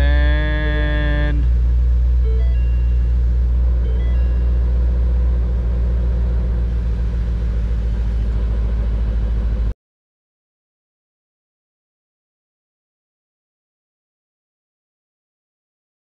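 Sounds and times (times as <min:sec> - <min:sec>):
car engine idling: 0:00.0 - 0:09.7.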